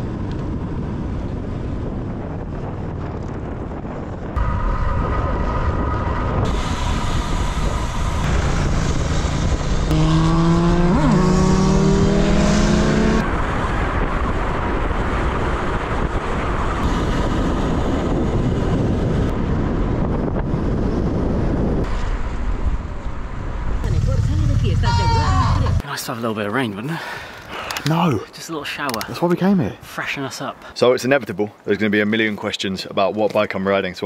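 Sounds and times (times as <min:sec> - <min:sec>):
wind noise: 0:00.0 - 0:25.8
motorcycle engine accelerating: 0:04.4 - 0:21.8, 0:23.8 - 0:25.8.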